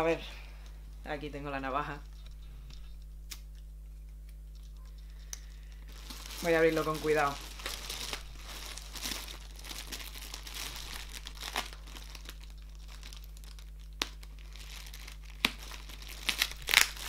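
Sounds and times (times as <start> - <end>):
plastic bag and tape crinkling: 4.5 - 17.0.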